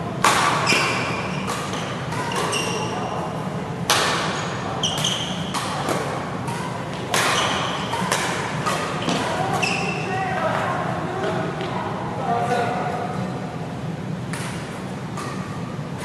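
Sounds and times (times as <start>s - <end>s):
rackets hitting shuttlecock: 0.2s - 3.0s, 3.8s - 9.9s, 14.3s - 16.0s
court shoes squeaking: 0.2s - 11.8s, 14.3s - 16.0s.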